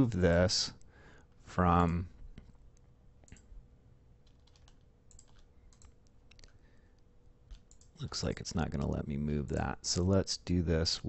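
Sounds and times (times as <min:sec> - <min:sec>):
faint steady hum: 0:00.0 - 0:11.0
computer keys and mouse clicks: 0:04.2 - 0:06.6, 0:07.5 - 0:09.0.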